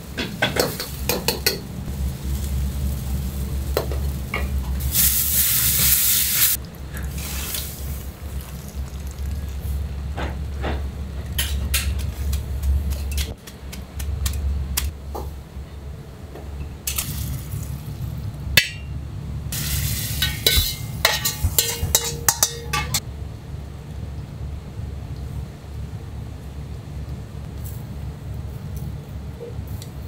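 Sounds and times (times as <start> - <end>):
steady low hum: 0.0 - 5.4, 6.6 - 30.0
metal utensils clinking on pots: 20.2 - 23.0.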